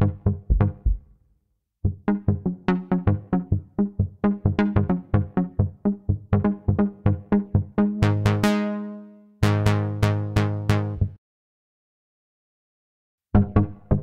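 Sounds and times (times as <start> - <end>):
synthesizer plucked notes: 0.0 - 1.0, 1.9 - 11.2, 13.4 - 14.0.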